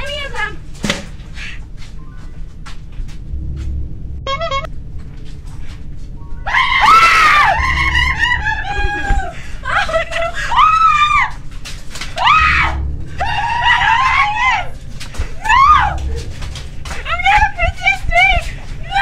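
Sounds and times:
steady low hum: 0.0 - 19.0
girl screaming: 6.5 - 11.4, 12.2 - 14.8, 15.4 - 16.1.

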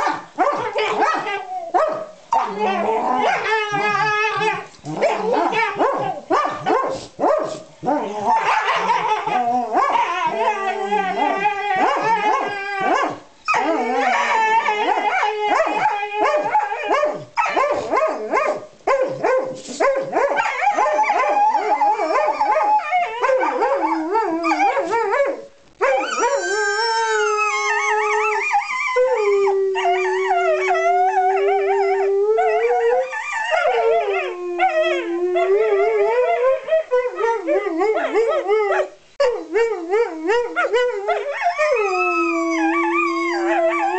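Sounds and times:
dogs yipping and barking: 0.0 - 27.7
dogs howling: 2.4 - 6.3, 7.8 - 17.2, 25.8 - 43.9.

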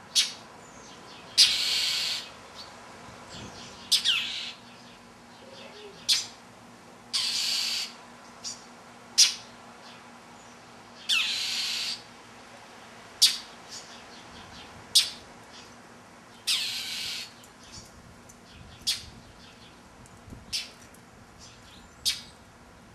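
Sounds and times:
harsh raspy bird calls: 1.3 - 2.4, 3.8 - 4.8, 5.4 - 6.4, 7.1 - 9.5, 11.0 - 12.1, 13.2 - 14.0, 16.4 - 17.4
mockingbird chack calls: 3.9 - 4.6, 7.2 - 8.0.

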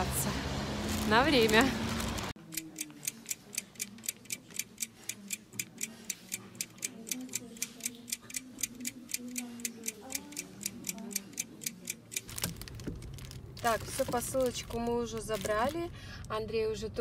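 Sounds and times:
faint voices: 1.0 - 12.5
clock ticking rapidly: 2.4 - 12.3.

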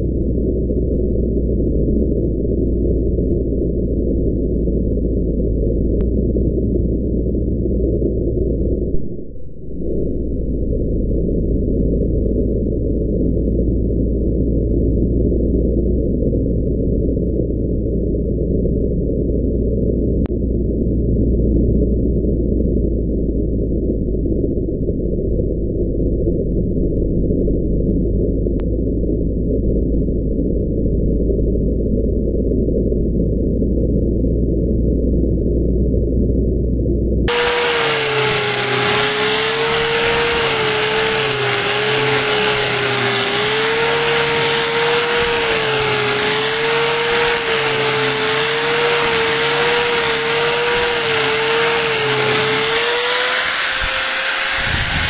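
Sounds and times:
muffled angle grinder grinding: 37.3 - 55.0.

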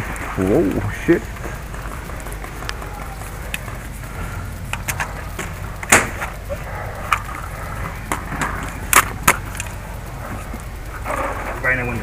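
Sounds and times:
steady low rumble: 0.0 - 12.0
paintball gun cracks: 5.8 - 6.3, 8.1 - 9.7.

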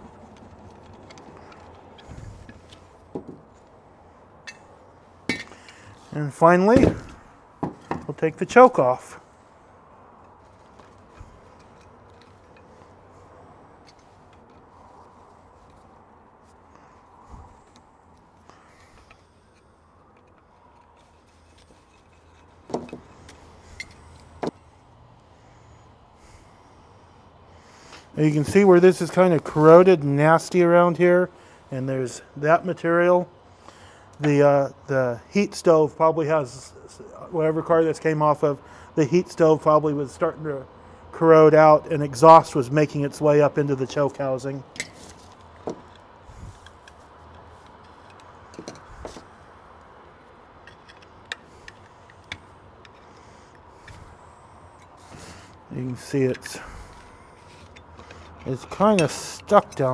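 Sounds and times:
low steady hum: 0.0 - 59.9
metal parts clicking and knocking: 50.6 - 53.1.

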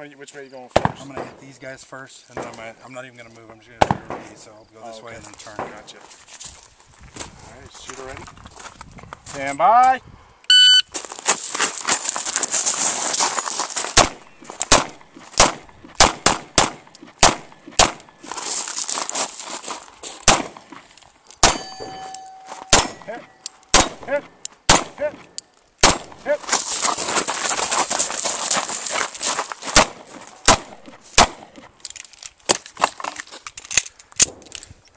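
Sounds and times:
pistol shots: 0.8 - 1.4, 3.8 - 4.4, 14.0 - 18.2, 20.2 - 20.6, 21.4 - 25.2, 25.8 - 26.3, 29.7 - 31.5
shot timer beep: 10.5 - 10.9
metallic ring: 21.4 - 23.8.

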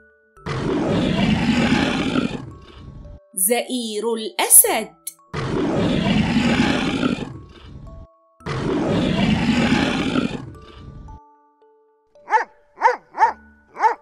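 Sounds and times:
soft background music: 0.0 - 14.0
lion roaring: 0.4 - 3.0, 5.4 - 11.1.

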